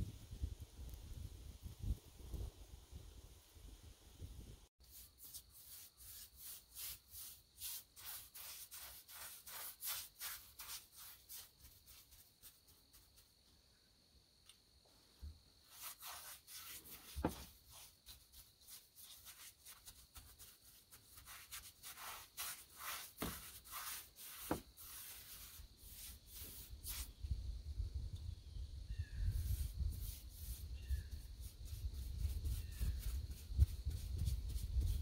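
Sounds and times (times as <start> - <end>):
brush scrubbing wood: 4.8 - 13.3, 15.6 - 27.1, 29.4 - 35.0.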